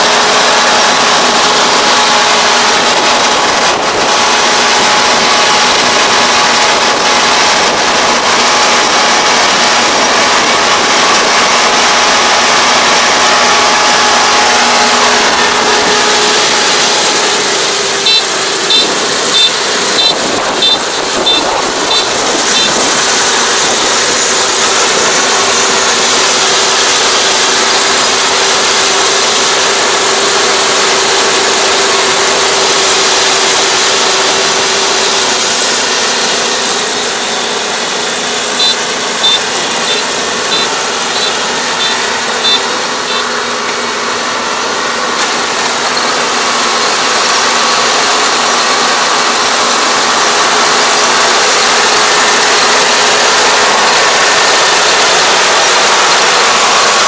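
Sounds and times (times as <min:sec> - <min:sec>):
combine harvester running: 0:00.0 - 0:57.0
high beeper: 0:14.8 - 0:22.8, 0:38.5 - 0:43.4.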